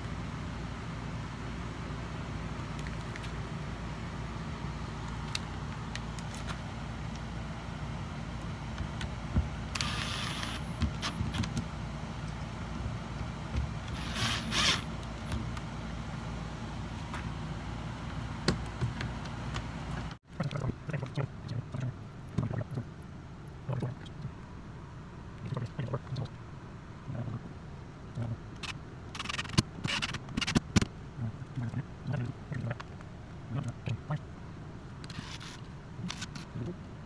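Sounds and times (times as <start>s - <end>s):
cordless drill driving screws: 9.8s - 11.4s, 13.9s - 14.9s.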